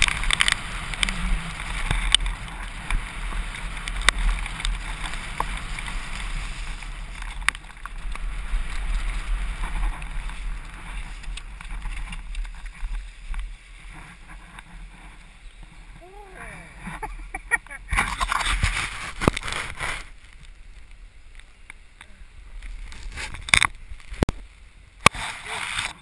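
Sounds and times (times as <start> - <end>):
bike clicks and knocks: 0.0 - 14.8, 21.3 - 24.4
tyres rumbling on gravel: 0.0 - 26.0.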